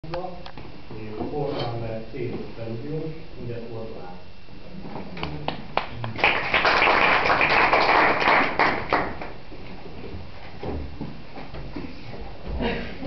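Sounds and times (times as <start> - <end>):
small audience clapping: 5.2 - 9.4.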